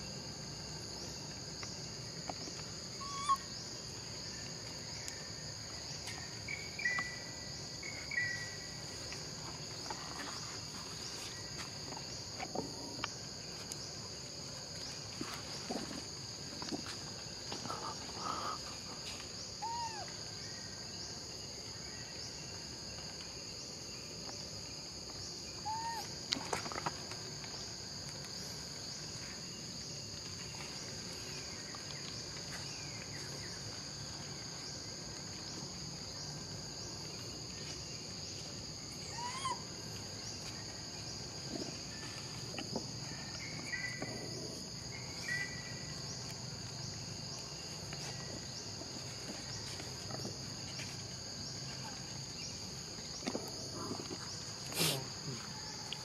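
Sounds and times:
insects chorus: 0.0 - 56.0.

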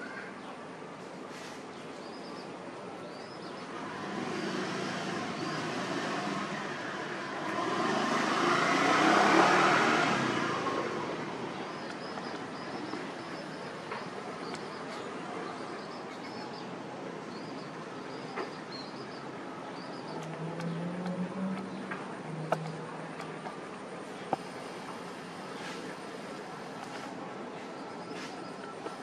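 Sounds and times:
vehicle passing: 3.6 - 14.5, 19.2 - 27.2.

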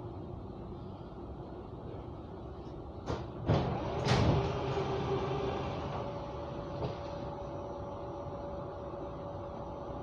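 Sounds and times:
standing train hum: 0.0 - 10.0
sliding doors knocking shut: 3.1 - 4.7.

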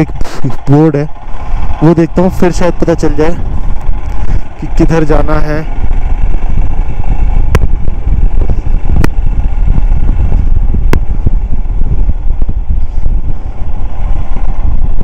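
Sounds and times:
motorcycle engine rumbling: 0.0 - 15.0.

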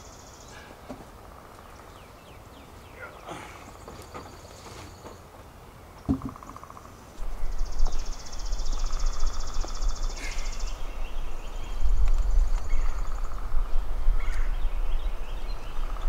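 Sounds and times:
bird calls: 0.0 - 16.0
thump: 6.1 - 6.4
wind buffeting microphone: 7.2 - 16.0.

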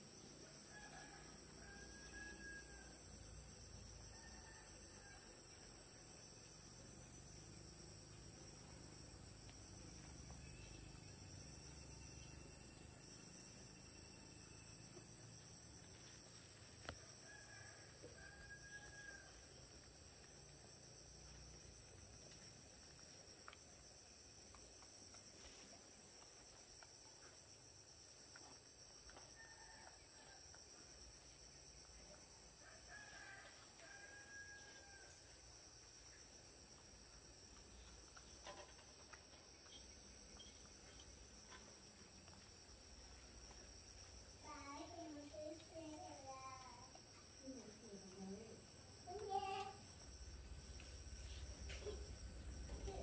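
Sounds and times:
high insect drone: 0.0 - 53.0
faint rooster crowing: 0.4 - 3.3, 4.0 - 5.7, 16.9 - 19.6, 29.2 - 30.6, 32.6 - 35.4.

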